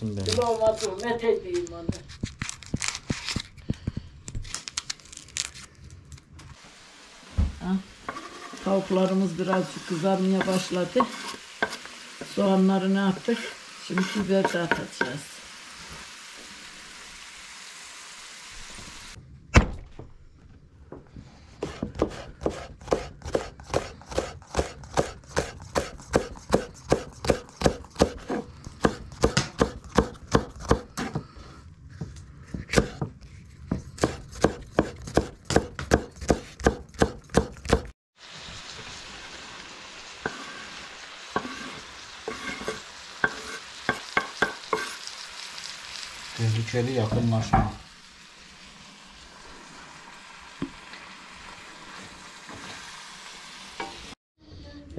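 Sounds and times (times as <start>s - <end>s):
chicken sizzling in a pan: 6.6s - 19.2s, 38.2s - 54.2s
knife chopping on cutting board: 10.4s - 11.8s, 21.6s - 31.2s, 32.5s - 37.9s, 42.3s - 45.0s.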